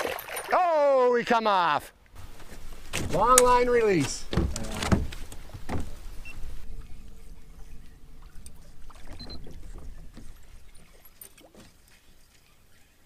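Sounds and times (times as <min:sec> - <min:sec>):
water around boat: 0:00.0 - 0:13.0
wind: 0:00.0 - 0:13.0
light clicks and knocks: 0:02.4 - 0:06.0.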